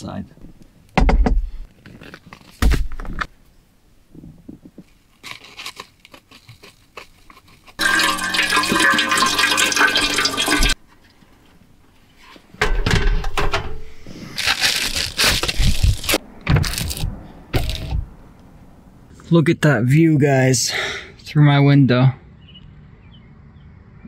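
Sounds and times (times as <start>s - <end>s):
water pouring into container: 7.8s - 10.8s
camp stove knocks and clatter: 12.6s - 13.8s.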